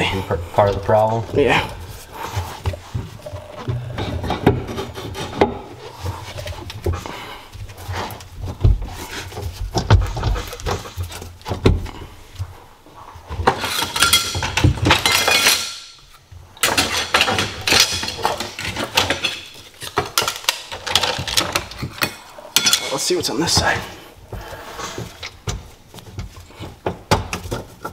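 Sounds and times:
metal tools clinking and rattling: 13.4s - 23.8s.

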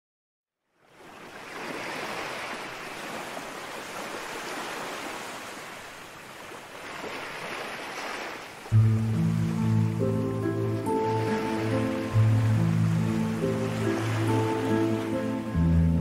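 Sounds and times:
ocean surf washing in: 6.8s - 15.8s
music with held notes and bass: 8.7s - 16.0s.

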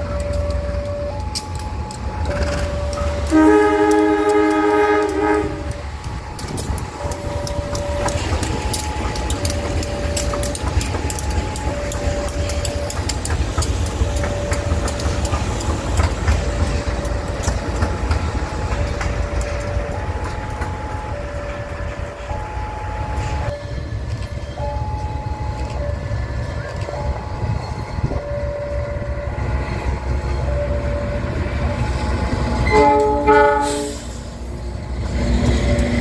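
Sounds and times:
two-tone warning signal: 0.0s - 15.6s, 16.3s - 34.1s
wheels clicking over rail joints: 0.0s - 36.0s
locomotive horn blast: 2.3s - 5.9s, 32.6s - 34.2s.

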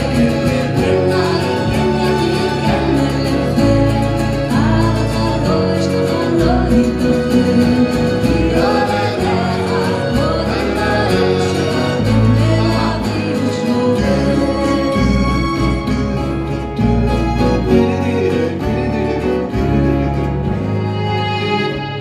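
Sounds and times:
woman singing into a microphone: 0.0s - 15.0s
acoustic guitars: 0.0s - 22.0s
keyboard: 0.0s - 22.0s.

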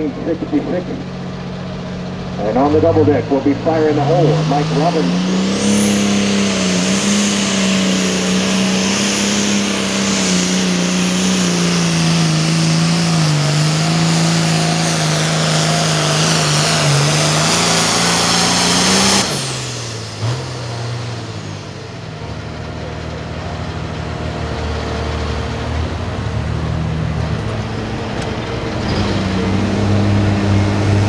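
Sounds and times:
diesel tractor engine at full throttle: 0.0s - 31.0s
high turbo whistle: 2.9s - 20.0s.

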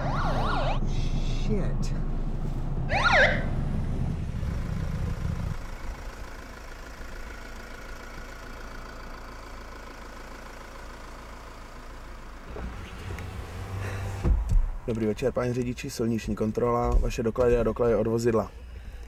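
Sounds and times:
police siren whoop: 0.0s - 1.1s, 2.9s - 3.6s
car engine idling: 0.0s - 19.0s.

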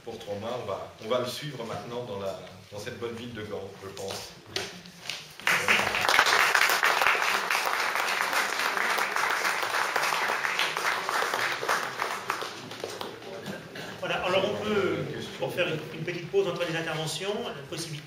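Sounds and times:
audience applauding: 5.4s - 13.6s.

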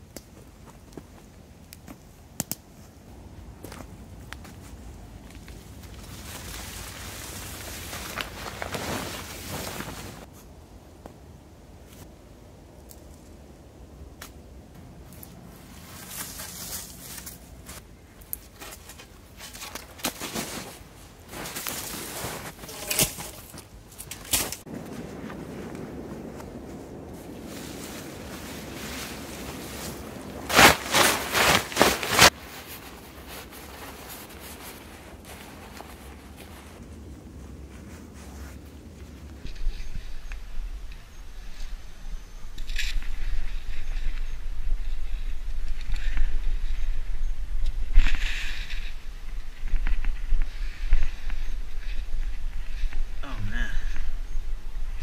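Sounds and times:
emergency blanket crinkling: 4.5s - 10.3s, 18.5s - 39.5s
tarp flapping snaps: 5.8s - 10.3s, 21.4s - 25.3s, 27.6s - 32.4s.

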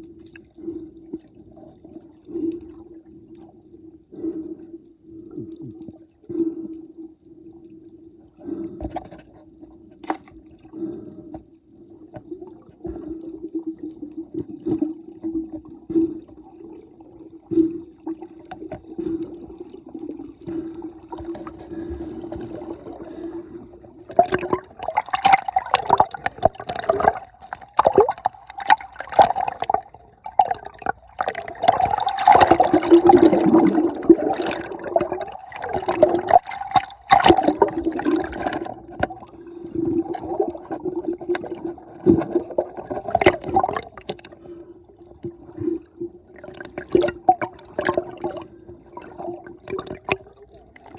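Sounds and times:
underwater low hum: 0.0s - 50.9s
underwater clicks: 8.8s - 10.5s, 24.1s - 39.4s, 41.3s - 44.4s
rushing bubbles and splashing: 12.2s - 50.9s.

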